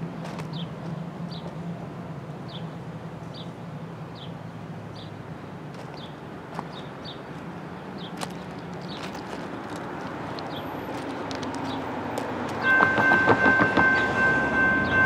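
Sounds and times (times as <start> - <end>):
distant diesel locomotive rumble: 0.0 - 15.0
bird chirping: 5.9 - 10.9.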